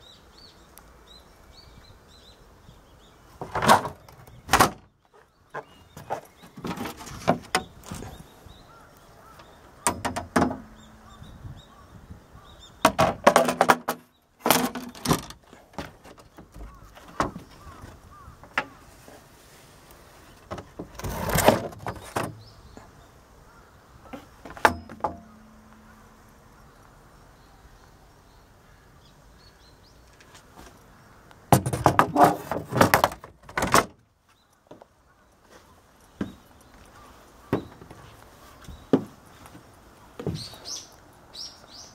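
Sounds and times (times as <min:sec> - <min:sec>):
knocks and clunks of hatch lids: 0:03.4 - 0:04.9, 0:09.8 - 0:10.8, 0:31.5 - 0:34.0.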